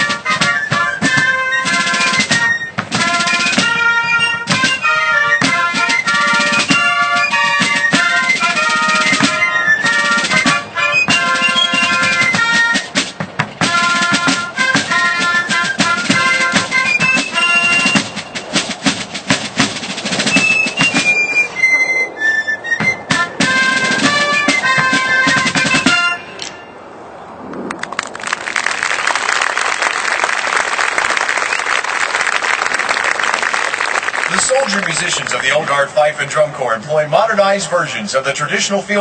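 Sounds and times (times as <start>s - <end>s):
snare drums: 0.0s - 21.5s, 22.8s - 26.5s, 34.1s - 36.1s
fifes and bugles melody: 0.0s - 27.0s, 32.1s - 39.0s.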